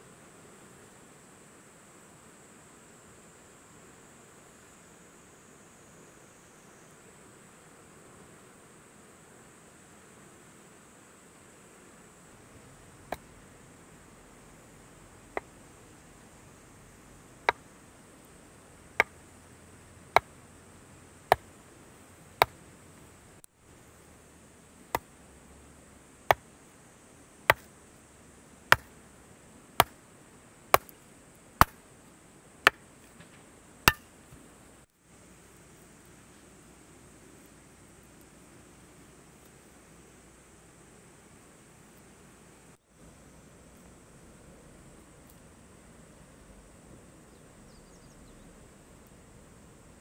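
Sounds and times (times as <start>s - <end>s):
hatchet chopping firewood: 27.5s - 27.7s, 28.7s - 28.9s, 29.8s - 30.0s, 30.7s - 31.0s, 31.6s - 31.8s, 33.9s - 34.1s.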